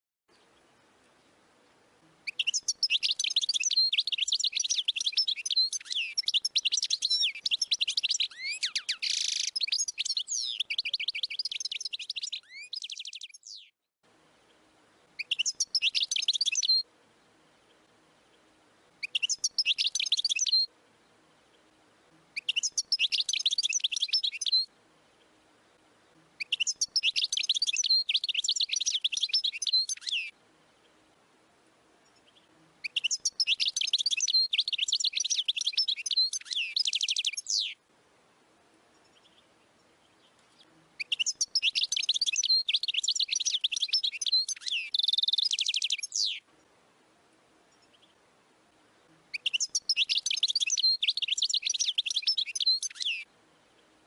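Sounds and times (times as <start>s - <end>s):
goldfinch singing: 2.2s - 13.7s, 15.2s - 16.8s, 19.0s - 20.7s, 22.4s - 24.7s, 26.4s - 30.3s, 32.0s - 37.8s, 40.2s - 46.4s, 49.3s - 53.3s.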